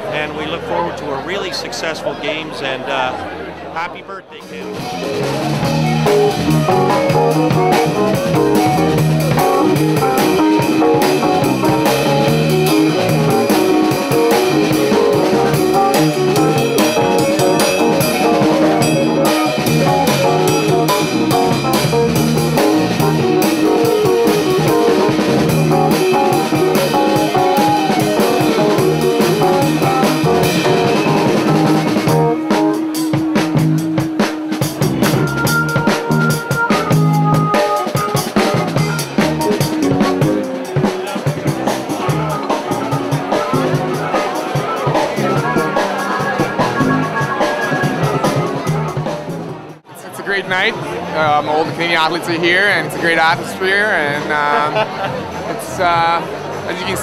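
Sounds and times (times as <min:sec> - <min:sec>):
music with guitar and drums: 0:04.4 - 0:49.9.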